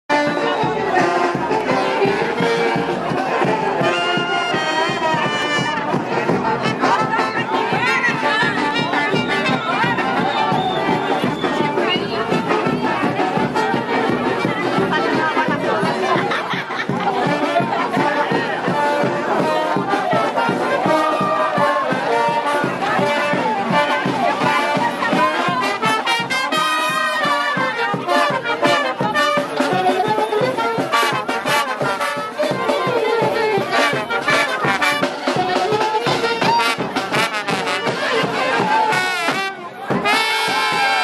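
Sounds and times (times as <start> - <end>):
brass band playing: 0.1 - 41.0
snare drum beat: 0.1 - 41.0.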